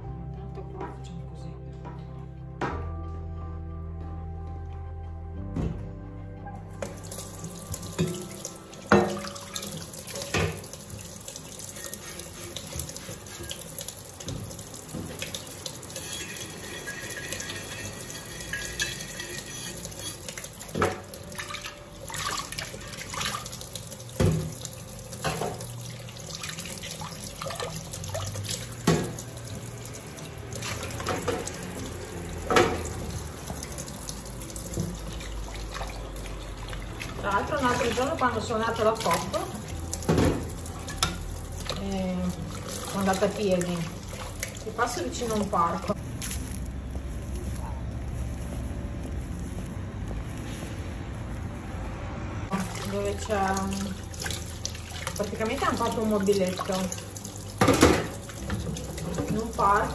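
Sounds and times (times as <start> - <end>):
dishes clinking against sink: 7.9 - 10.8, 11.7 - 23.3, 25.2 - 25.7, 57.6 - 59.6
bottle brush scrubbing: 11.3 - 14.0.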